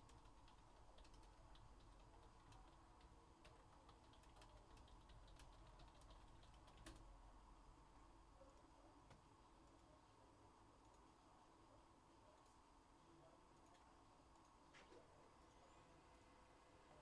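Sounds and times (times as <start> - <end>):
typing on a computer keyboard: 0.0 - 7.1.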